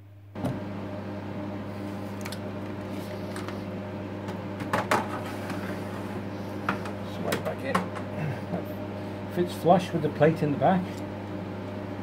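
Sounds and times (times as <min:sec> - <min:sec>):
electrical hum and fan noise: 0:00.0 - 0:12.0.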